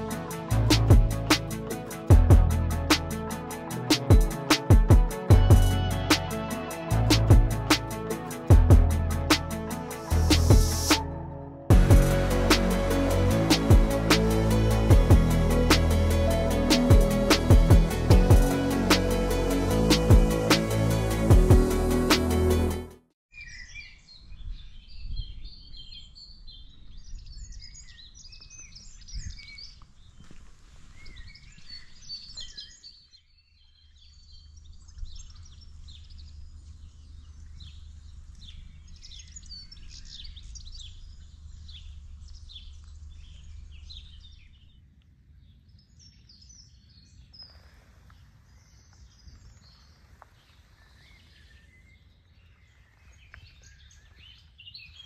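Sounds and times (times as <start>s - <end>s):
birds chirping and singing: 23.4s - 30.4s, 31.0s - 44.8s, 48.6s - 55.0s.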